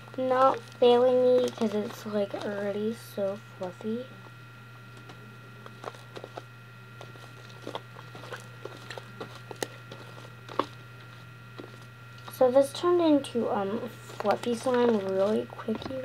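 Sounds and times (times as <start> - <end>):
steady low hum: 0.0 - 16.0
slime squishing by hand: 5.7 - 12.4.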